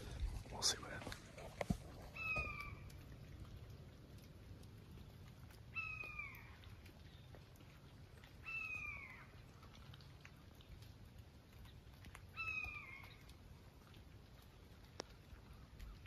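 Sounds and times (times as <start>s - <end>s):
faint high mewing calls: 2.1s - 3.0s.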